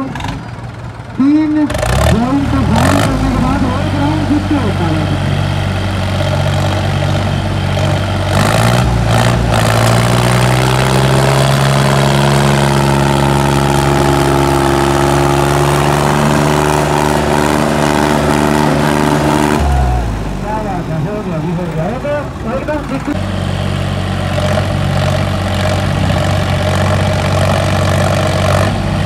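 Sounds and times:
tractor diesel engine revving: 0.0 - 29.0.

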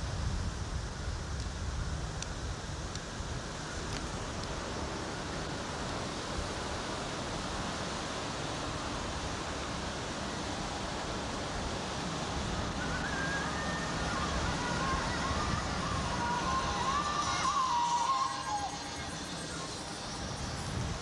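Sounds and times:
wind rumbling on microphone: 0.0 - 21.0
surf rushing: 3.3 - 21.0
faint pitched tones: 12.6 - 20.8.

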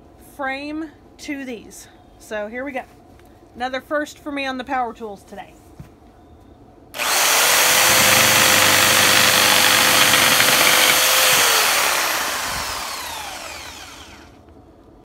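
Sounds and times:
jigsaw cutting wood: 7.0 - 14.4.

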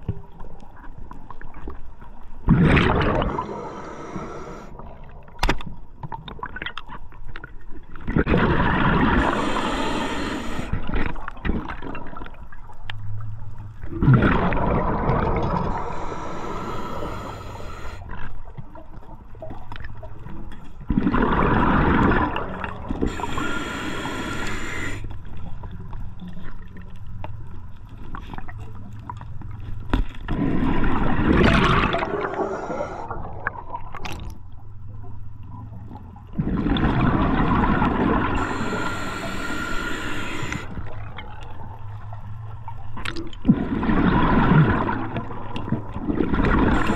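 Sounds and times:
exhaled bubbles underwater: 2.4 - 5.4, 7.9 - 12.8, 13.8 - 26.8, 30.3 - 34.3, 35.6 - 41.9, 42.7 - 46.9
regulator inhale hiss: 3.3 - 4.7, 9.2 - 10.9, 15.7 - 18.1, 23.0 - 25.2, 31.9 - 33.1, 38.3 - 40.9.

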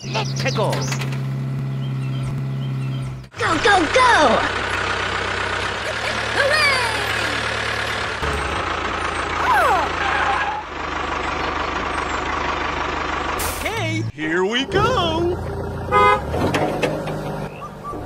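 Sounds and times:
tractor engine running: 0.0 - 18.0
high-pitched voice exclamations: 9.4 - 10.0.

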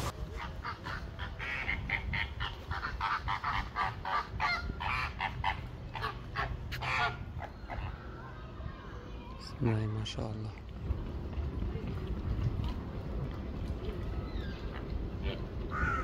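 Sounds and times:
flamingos honking: 0.0 - 8.0.

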